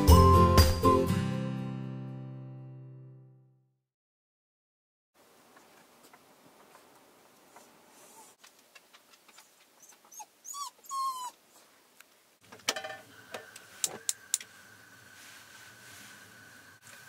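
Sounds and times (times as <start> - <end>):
dog whining: 9.4 - 11.7.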